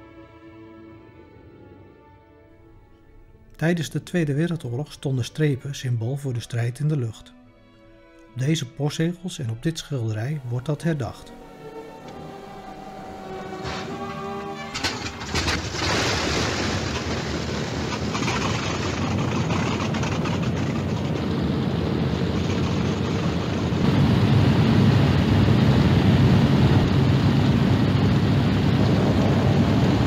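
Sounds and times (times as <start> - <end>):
propeller aircraft engines droning: 8.0 - 30.0.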